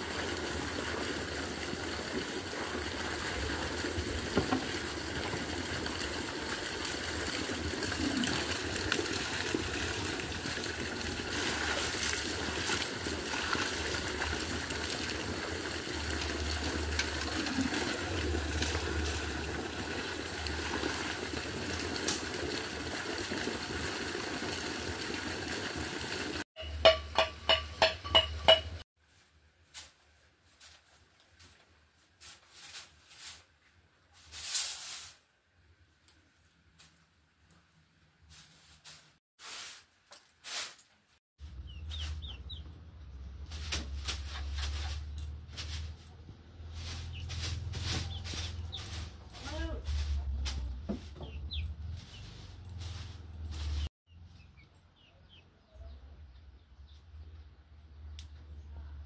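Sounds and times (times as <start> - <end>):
water running and splashing: 0.0 - 26.5.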